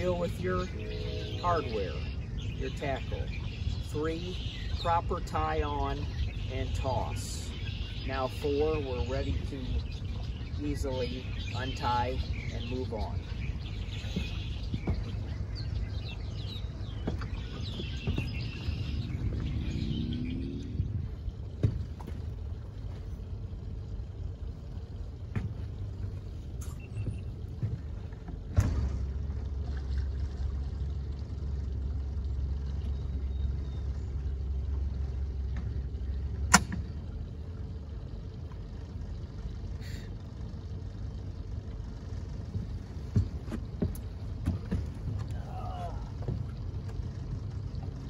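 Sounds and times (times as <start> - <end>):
boat engine rumble: 0.0 - 48.0
knocks on boat hull: 14.0 - 15.2, 17.0 - 18.5, 25.3 - 25.6, 42.5 - 45.4.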